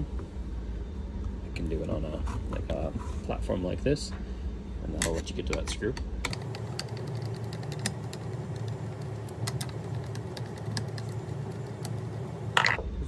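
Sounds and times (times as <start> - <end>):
steady low hum: 6.1 - 13.0.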